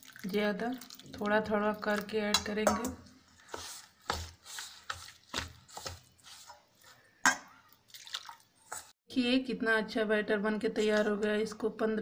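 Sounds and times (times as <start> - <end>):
spoon scraping a steel bowl: 2.7 - 7.6, 8.6 - 8.9.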